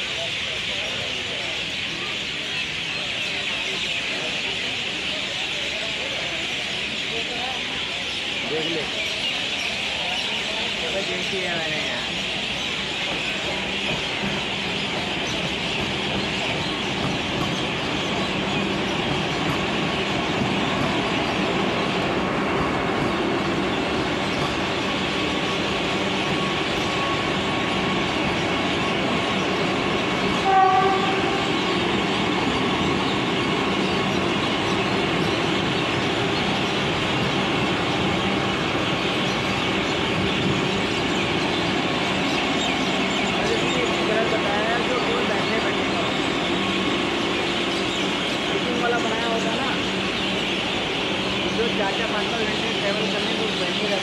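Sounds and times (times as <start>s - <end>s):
train wheels rumbling on rails: 0.0s - 54.0s
train horn blast: 30.4s - 31.6s.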